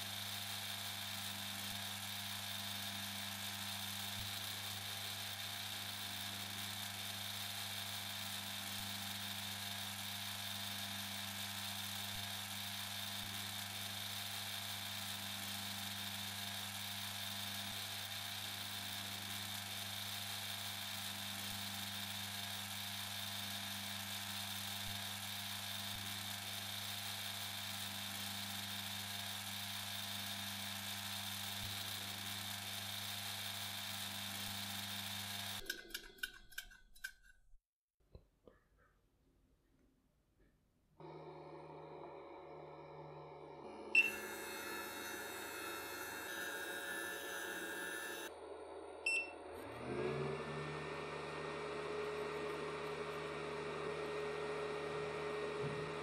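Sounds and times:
lathe whirring with high whine: 0:41.0 - 0:56.0.

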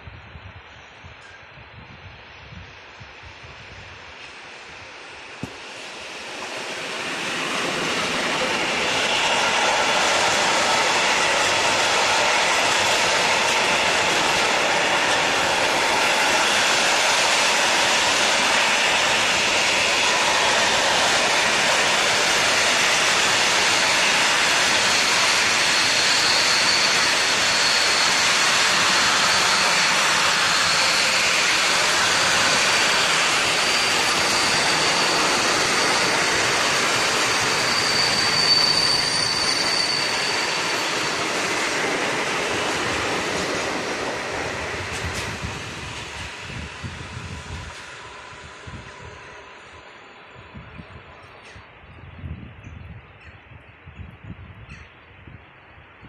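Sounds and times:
train wheels on rail: 0:00.0 - 0:56.0
high wheel squeal: 0:06.4 - 0:47.9.

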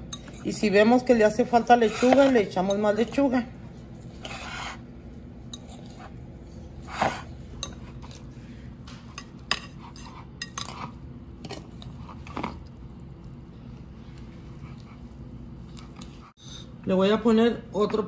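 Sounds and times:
fork clinking against glass bowl: 0:07.6 - 0:08.2.

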